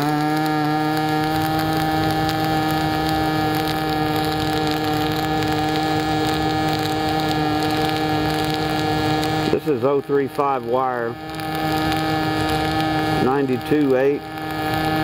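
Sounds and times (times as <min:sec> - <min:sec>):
crackling hiss: 0:00.0 - 0:15.0
welding arc buzzing: 0:00.0 - 0:15.0.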